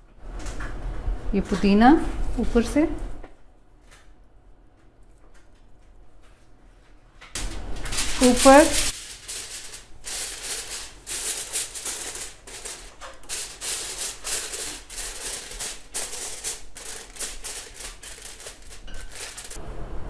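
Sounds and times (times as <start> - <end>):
aluminium foil crinkling: 7.4 - 19.6.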